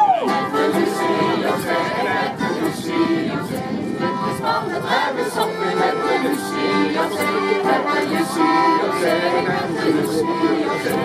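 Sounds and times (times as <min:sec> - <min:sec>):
accordion: 0:00.0 - 0:11.0
group singing in unison: 0:00.2 - 0:11.0.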